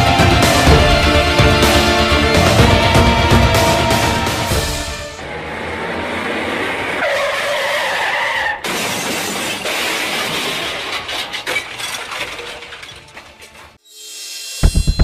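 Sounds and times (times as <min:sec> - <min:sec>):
car crunching and scraping: 0:05.5 - 0:13.8.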